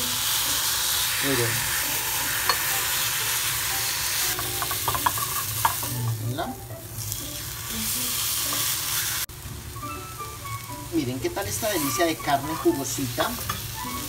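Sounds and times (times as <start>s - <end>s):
steak sizzling in frying pan: 0.0s - 14.0s
utensil scraping pan: 1.0s - 6.2s.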